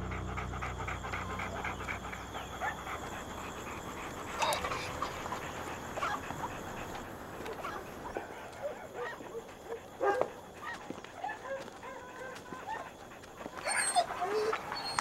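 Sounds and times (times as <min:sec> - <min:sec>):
dog: 0:00.0 - 0:15.0.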